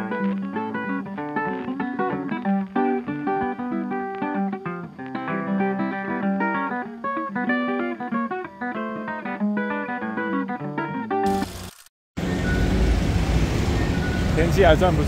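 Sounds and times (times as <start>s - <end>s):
acoustic guitar music: 0.0s - 11.4s.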